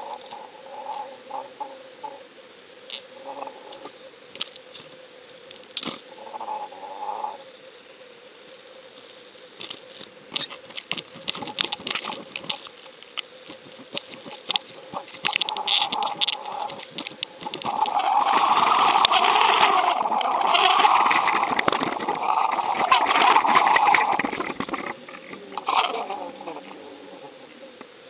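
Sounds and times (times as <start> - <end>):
faint steady hum: 0.0 - 28.0
sharp underwater clicks and knocks: 9.6 - 26.0.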